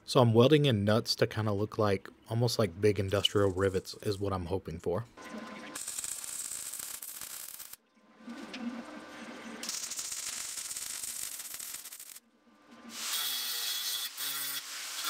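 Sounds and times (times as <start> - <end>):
welding arc crackling and sizzling: 5.8 - 7.8, 8.5 - 15.0.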